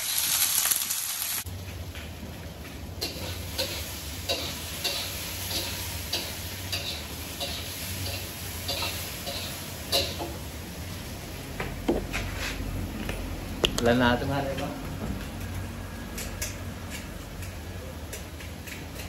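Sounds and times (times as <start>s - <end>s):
meat sizzling in a wok: 0.0s - 11.9s
spatula tapping and scraping pan: 3.0s - 10.4s.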